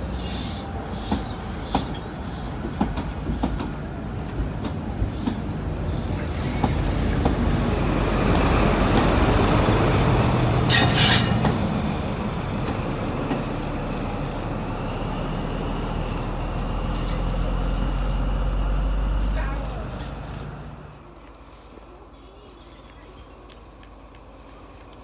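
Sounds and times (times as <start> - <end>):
diesel engine drone: 6.8 - 21.2.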